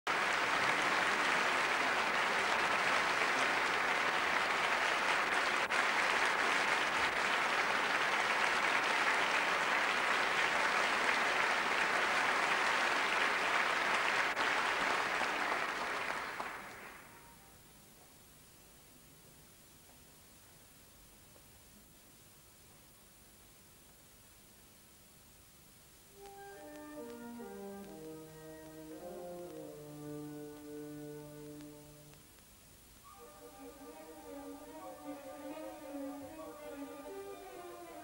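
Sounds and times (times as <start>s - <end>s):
audience applauding: 0.1s - 17.4s.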